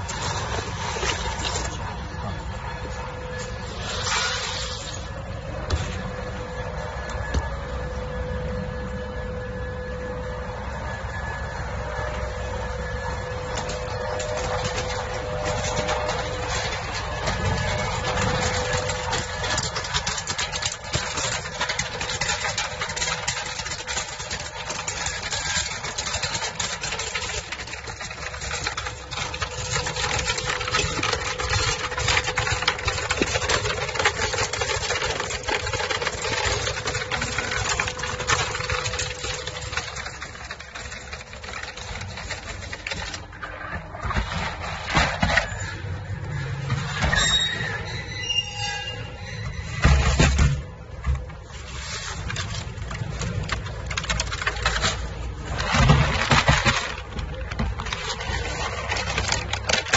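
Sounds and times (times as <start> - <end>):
steady machine hum: 0.0 - 45.1
dense patter of small clicks: 13.3 - 46.4, 50.7 - 59.9.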